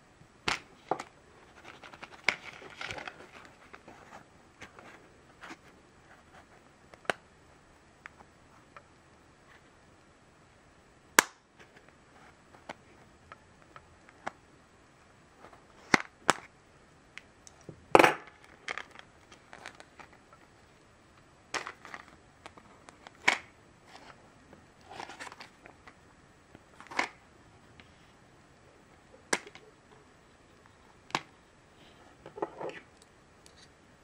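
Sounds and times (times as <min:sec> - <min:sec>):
plastic packaging crackling: 0:18.4 - 0:20.3.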